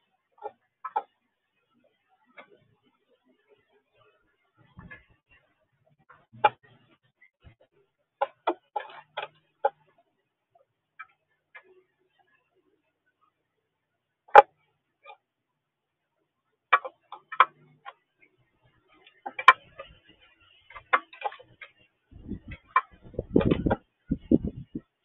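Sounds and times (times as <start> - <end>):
low muffled thumps: 22.2 - 24.8.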